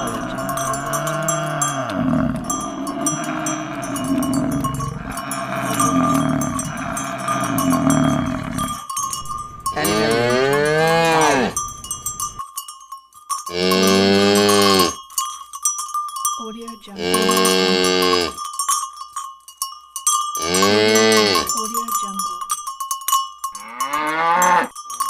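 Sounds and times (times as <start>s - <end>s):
cow grunting: 0.0s - 11.6s
cow mooing: 0.0s - 11.6s, 13.5s - 15.0s, 17.0s - 18.4s, 20.4s - 21.5s, 23.6s - 24.7s
high bell-like tone: 0.0s - 14.0s.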